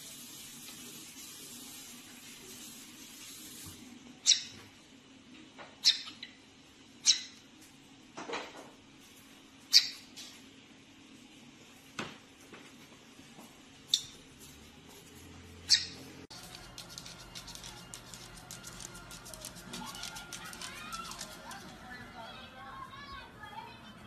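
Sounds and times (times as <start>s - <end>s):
parrot squawking: 4.2s - 4.6s, 5.8s - 6.4s, 7.0s - 7.4s, 9.7s - 10.0s, 15.7s - 16.0s.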